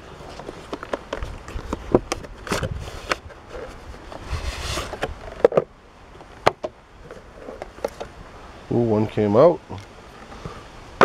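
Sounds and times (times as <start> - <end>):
cardboard scraping rustle: 0.0 - 5.7, 7.0 - 8.2.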